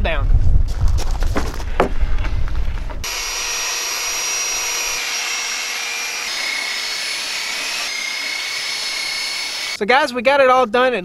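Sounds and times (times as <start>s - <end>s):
belt sander sanding wood: 3.0s - 9.8s.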